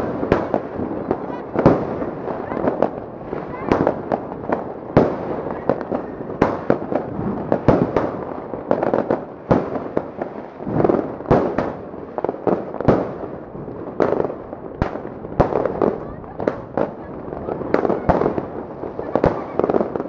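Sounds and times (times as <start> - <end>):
firework bangs: 0.0 - 20.0
firework bursts hissing: 0.0 - 20.0.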